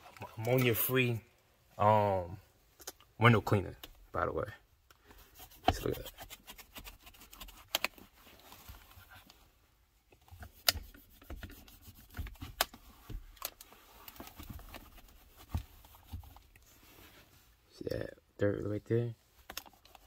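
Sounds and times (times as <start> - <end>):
towel wiping plastic trim: 5.3 - 9.1.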